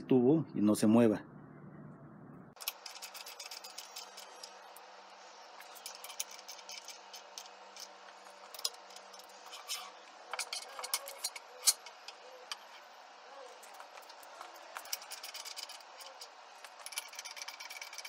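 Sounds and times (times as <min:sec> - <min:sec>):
screwdriver clicking on metal: 0:05.6 - 0:12.8, 0:13.6 - 0:18.0.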